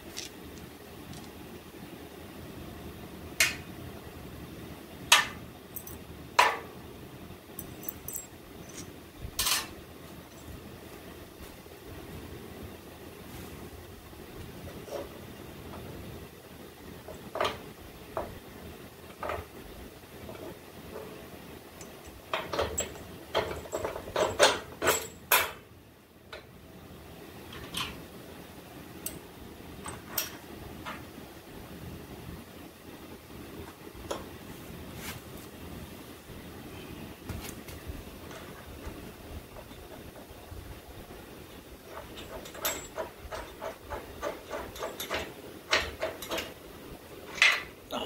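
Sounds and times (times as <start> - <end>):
steady low hum: 0.0 - 48.0
metal bolts clinking on steel: 5.1 - 6.6, 7.6 - 10.6, 21.8 - 25.6, 41.8 - 46.6, 47.2 - 47.8.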